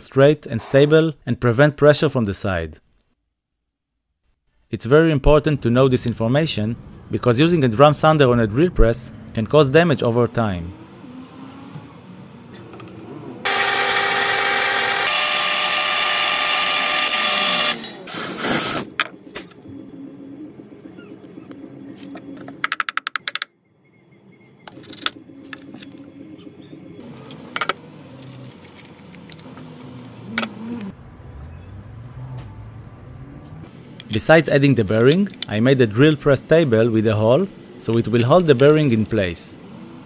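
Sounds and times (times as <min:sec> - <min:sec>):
power tool motor whirring: 0:13.4 - 0:18.9.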